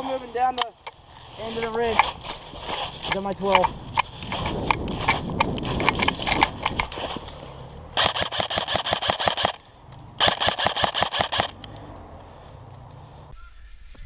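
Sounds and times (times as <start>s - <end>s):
footsteps crunching dry leaves: 0.0s - 7.9s
airsoft rifle automatic fire: 8.0s - 9.6s, 10.2s - 11.6s.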